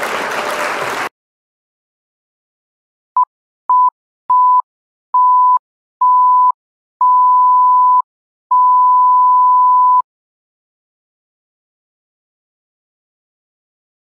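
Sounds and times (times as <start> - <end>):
electronic countdown beeps: 3.2 - 10.0.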